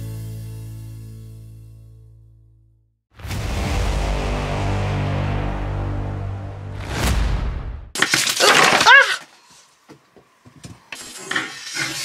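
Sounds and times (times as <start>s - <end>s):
background music with heavy bass: 3.2s - 7.8s.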